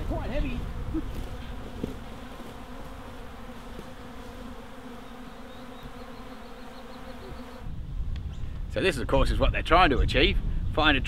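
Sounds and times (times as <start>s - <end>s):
bees buzzing: 0.0s - 7.8s.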